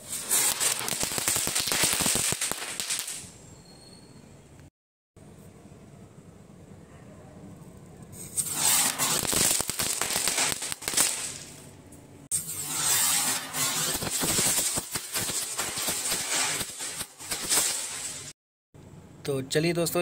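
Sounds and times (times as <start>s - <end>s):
firecracker crackling and fizzing: 0.0s - 3.4s, 8.2s - 18.4s.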